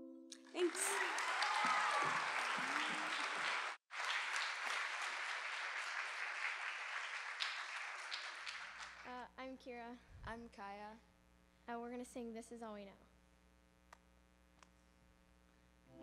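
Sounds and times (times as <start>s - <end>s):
audience applauding: 0.4s - 9.1s.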